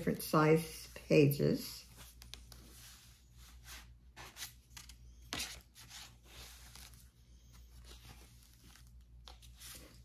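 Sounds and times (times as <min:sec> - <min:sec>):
paper pages rustling: 0:01.8 - 0:10.0.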